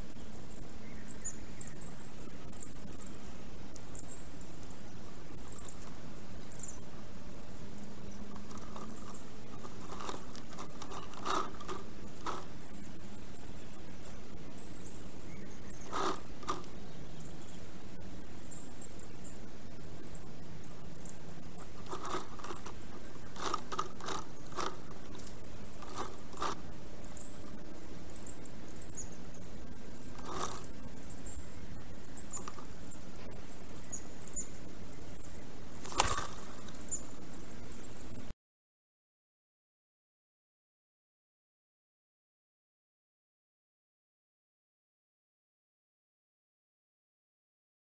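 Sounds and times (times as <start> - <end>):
small birds twittering: 0.0 - 38.3
twigs clicking and knocking: 8.3 - 12.6, 21.6 - 26.6, 30.1 - 30.7, 35.8 - 36.7.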